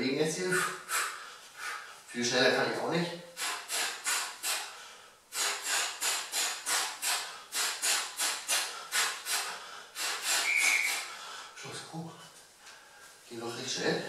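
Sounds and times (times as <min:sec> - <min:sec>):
man's sharp hissing breaths: 0:00.4 - 0:02.1, 0:03.3 - 0:11.6.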